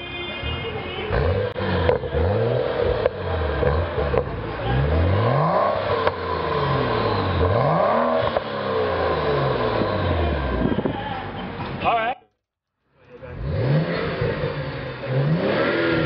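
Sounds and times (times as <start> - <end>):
car engine revving: 1.1 - 10.8, 13.1 - 16.0.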